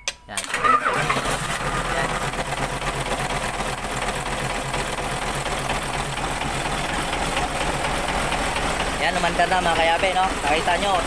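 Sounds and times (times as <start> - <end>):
diesel engine idling: 0.4 - 11.0.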